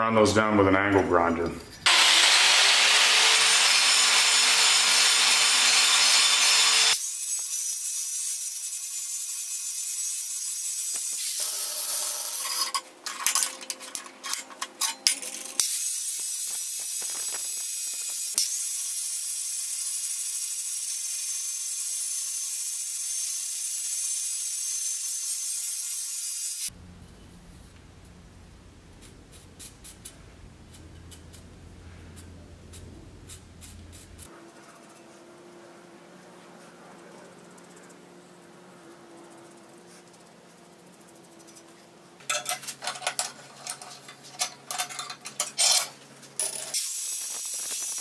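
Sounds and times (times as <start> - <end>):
angle grinder grinding steel: 1.8 - 26.7, 29.0 - 35.0.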